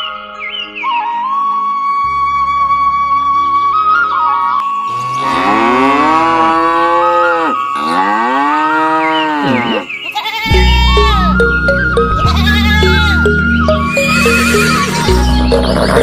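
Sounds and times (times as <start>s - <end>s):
background music: 0.0s - 16.0s
cow mooing: 4.9s - 9.9s.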